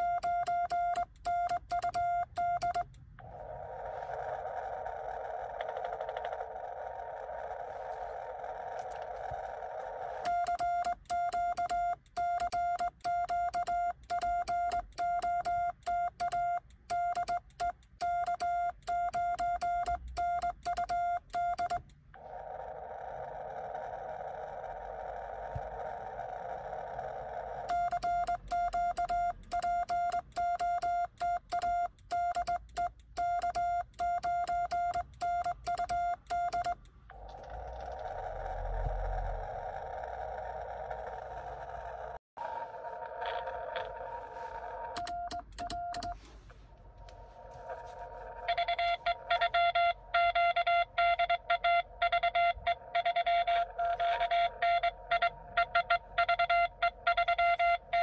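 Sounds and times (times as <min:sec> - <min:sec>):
morse code beeps: 0:00.0 - 0:03.0, 0:10.2 - 0:21.9, 0:27.7 - 0:36.9, 0:44.9 - 0:46.3, 0:47.6 - 0:58.0.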